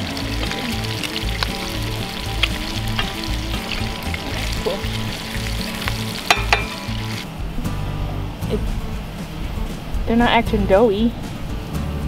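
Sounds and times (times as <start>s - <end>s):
bacon sizzling in a skillet: 0.0s - 7.2s.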